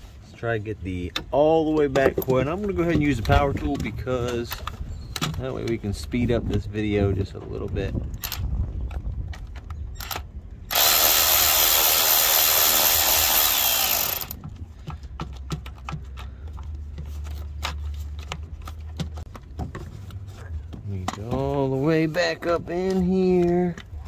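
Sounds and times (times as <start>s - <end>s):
power tool motor whine: 10.7s - 14.4s.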